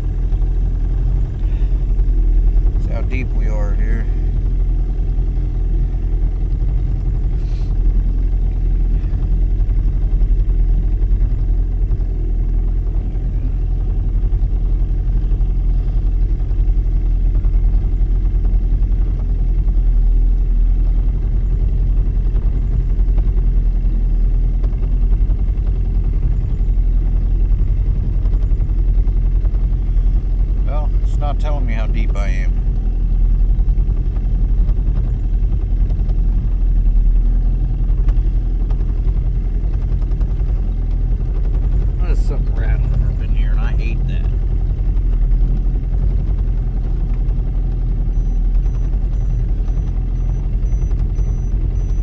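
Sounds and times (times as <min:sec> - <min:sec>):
boat motor humming: 0:00.0 - 0:52.0.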